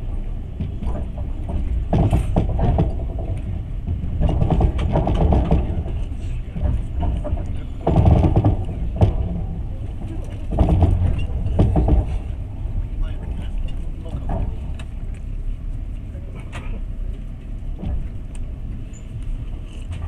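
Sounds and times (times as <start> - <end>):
train wheels rumbling on rails: 0.0 - 20.0
sharp knocks: 7.8 - 9.4.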